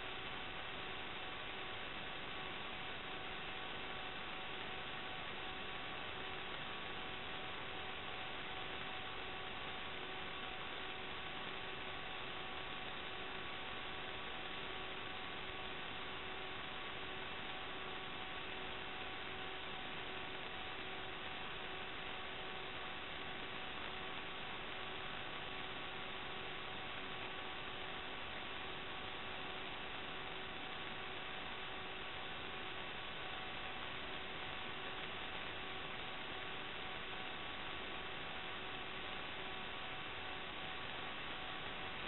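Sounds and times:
electronic hiss: 0.0 - 42.0
faint hum tones: 0.0 - 42.0.

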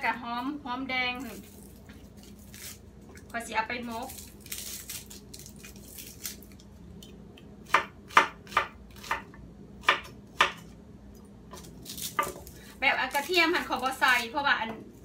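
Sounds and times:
dry rustling of peeling: 1.2 - 6.6.

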